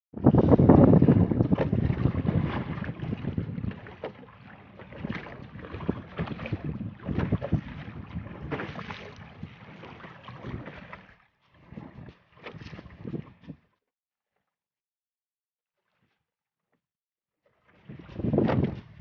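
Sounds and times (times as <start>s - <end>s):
wind buffeting microphone: 0.1s - 4.1s, 5.1s - 9.5s, 18.0s - 19.0s
water slapping against boat hull: 0.2s - 13.8s, 17.4s - 19.0s
knocks and splashes: 0.3s - 13.7s, 17.5s - 19.0s.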